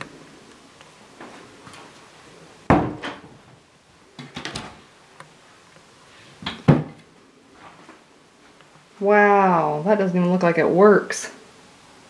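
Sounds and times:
cabinet doors knocking shut: 0:02.7 - 0:03.2, 0:06.5 - 0:07.0.

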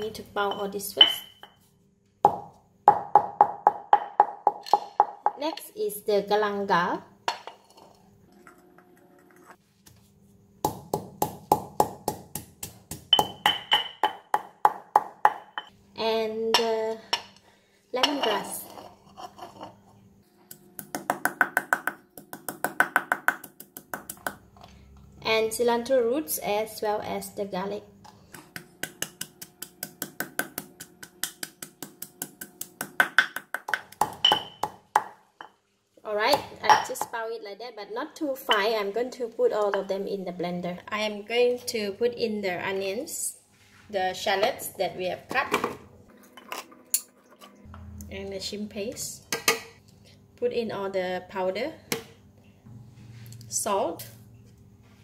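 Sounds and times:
pestle pounding in stone mortar: 0:02.2 - 0:05.4, 0:10.6 - 0:15.7, 0:20.8 - 0:24.4, 0:28.5 - 0:35.2.

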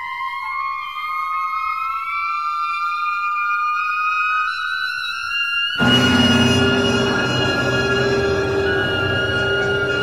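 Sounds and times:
high tone gliding upward: 0:05.8 - 0:10.0.

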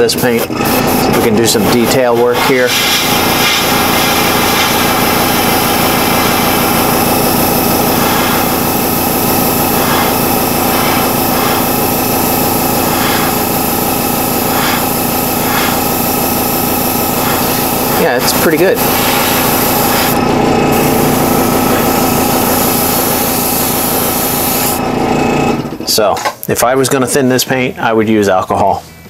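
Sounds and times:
compressor and fan humming: 0:00.0 - 0:29.0
airbrush spraying hiss: 0:02.4 - 0:24.8.

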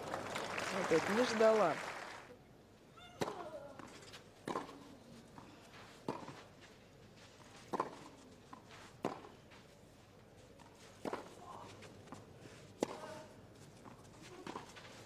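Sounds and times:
tennis rackets hitting ball: 0:03.2 - 0:04.9, 0:06.0 - 0:06.4, 0:07.7 - 0:09.4, 0:10.6 - 0:11.5, 0:12.8 - 0:15.0.

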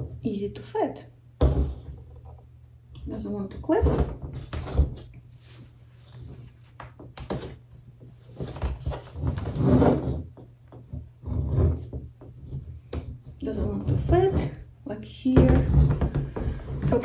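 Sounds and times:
plastic rubbing and scraping: 0:03.8 - 0:14.6, 0:15.4 - 0:17.0.

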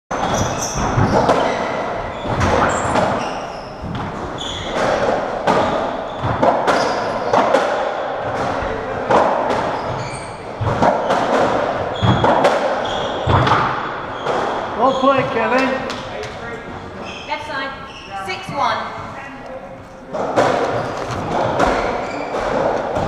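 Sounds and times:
shoes squeaking on wooden floor: 0:00.1 - 0:07.6, 0:09.5 - 0:23.0
racket hitting ball: 0:10.6 - 0:14.6, 0:20.1 - 0:23.0.

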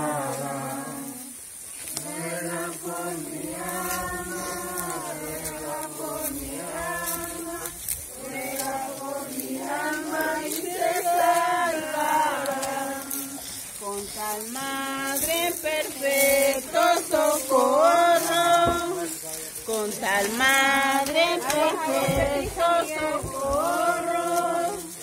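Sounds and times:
group singing a hymn unaccompanied: 0:00.0 - 0:25.0.

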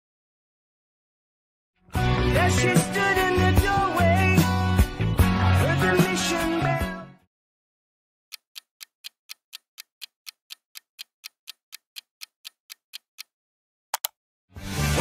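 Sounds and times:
music: 0:01.8 - 0:07.3, 0:14.5 - 0:15.0
clock ticking: 0:08.3 - 0:13.3
quick double click: 0:13.9 - 0:14.2.

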